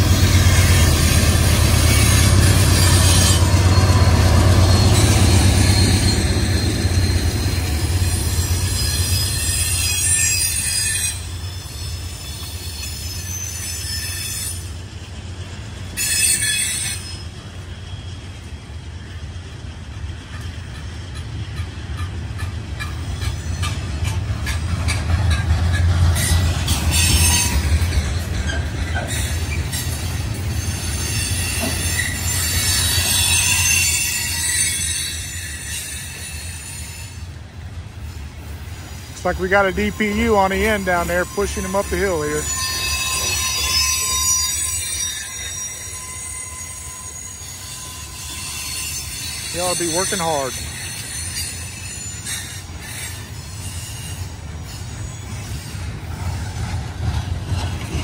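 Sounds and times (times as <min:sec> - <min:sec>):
train wheels rumbling on rail: 0:00.0 - 0:58.0
high-pitched wheel squeal: 0:00.2 - 0:14.7, 0:16.0 - 0:17.3, 0:26.2 - 0:37.3, 0:38.7 - 0:55.9.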